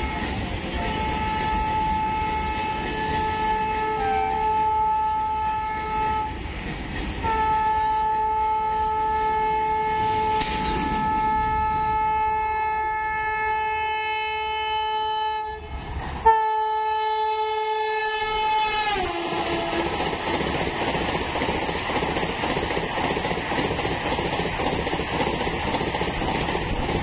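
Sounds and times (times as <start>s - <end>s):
train horn blasts: 0.0s - 6.4s, 7.2s - 20.0s
train rumble: 0.0s - 27.0s.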